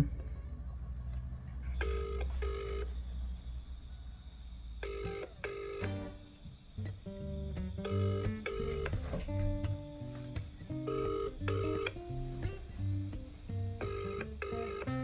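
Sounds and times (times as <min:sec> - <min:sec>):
double-ring phone ringback tone: 0:01.8 - 0:02.9, 0:04.8 - 0:06.1, 0:10.9 - 0:12.0, 0:13.8 - 0:14.9.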